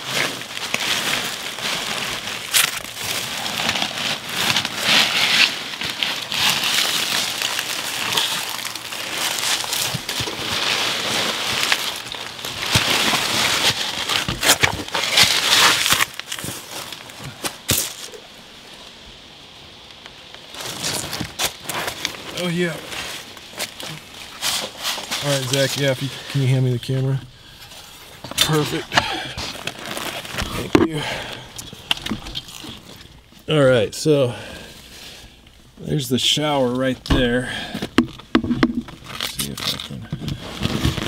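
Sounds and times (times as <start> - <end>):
clothing scraping: 0.0 - 17.0, 20.6 - 31.0, 37.2 - 41.0
dry leaves crackling: 0.0 - 19.0, 20.2 - 33.5.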